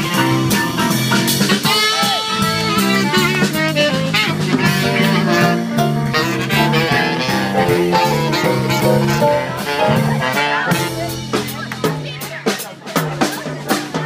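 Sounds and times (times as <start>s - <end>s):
saxophone lead: 0.0s - 11.6s
jazz band playing: 0.0s - 14.0s.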